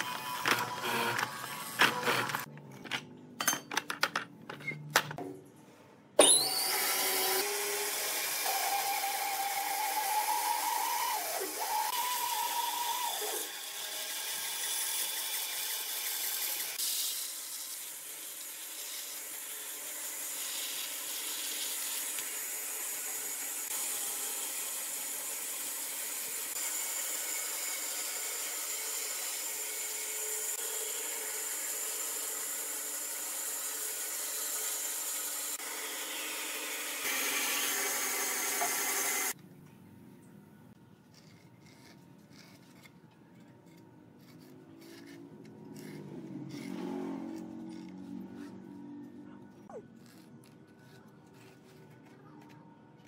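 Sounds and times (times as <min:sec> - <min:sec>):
power tool cutting wood: 0:00.0 - 0:02.5, 0:06.2 - 0:39.4, 0:44.8 - 0:49.0.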